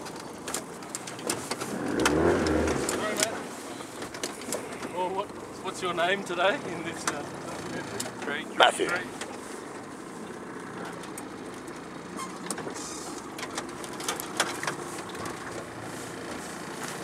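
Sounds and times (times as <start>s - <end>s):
outboard motor running: 0.0s - 17.0s
branches scraping metal hull: 1.0s - 9.7s.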